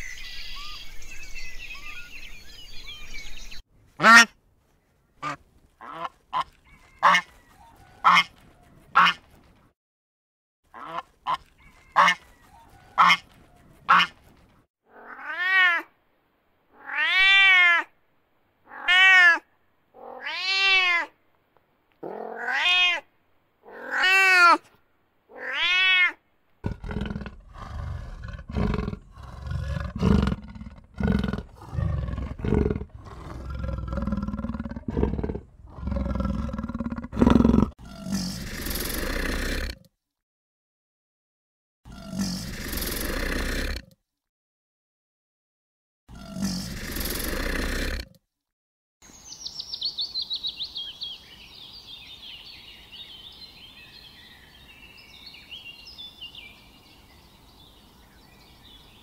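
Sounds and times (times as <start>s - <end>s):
cat meowing: 14.9s - 15.9s, 16.8s - 17.9s, 18.7s - 19.4s, 20.0s - 21.1s, 22.1s - 23.1s, 25.3s - 26.2s.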